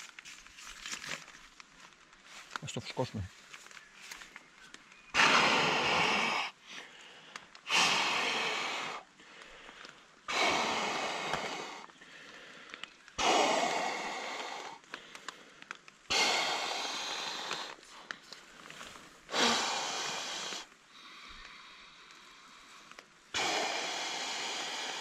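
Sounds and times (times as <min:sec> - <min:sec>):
man blowing into a valve: 0:05.1 - 0:06.5, 0:07.7 - 0:09.0, 0:19.3 - 0:20.7, 0:23.3 - 0:25.0.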